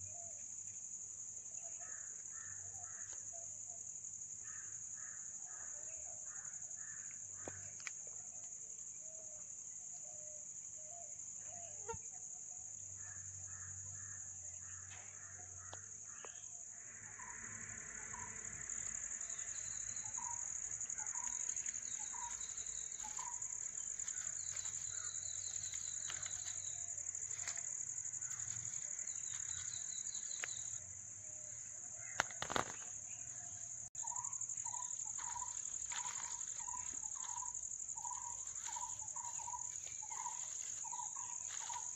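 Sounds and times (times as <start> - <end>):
high-pitched insect drone: 16.0 - 30.9, 32.2 - 41.9
birds calling: 19.2 - 27.6, 32.0 - 41.9.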